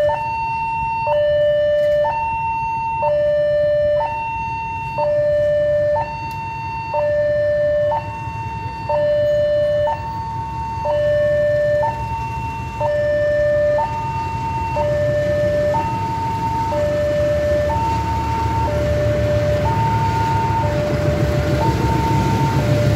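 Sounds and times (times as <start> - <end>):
level crossing two-tone alarm: 0.0 - 22.9
diesel locomotive rumble: 0.8 - 22.9.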